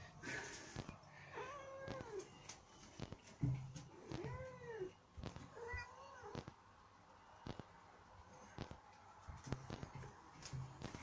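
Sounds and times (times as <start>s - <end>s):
cat meowing: 1.3s - 2.3s, 4.0s - 6.5s.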